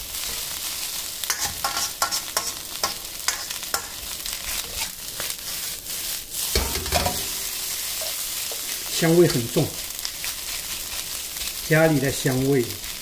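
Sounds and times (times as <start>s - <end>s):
fried rice sizzling in a wok: 0.0s - 13.0s
metal ladle scraping a wok: 1.2s - 5.7s, 6.4s - 9.6s.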